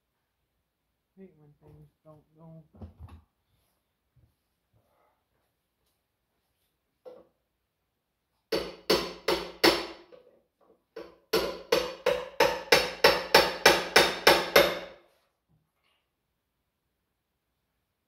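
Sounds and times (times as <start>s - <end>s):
hammer on metal: 8.5s - 10.1s, 11.0s - 15.0s.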